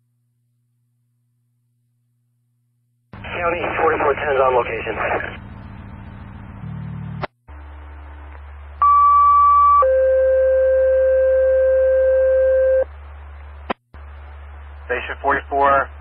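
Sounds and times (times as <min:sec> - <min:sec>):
low radio hum: 0:00.1 - 0:16.0.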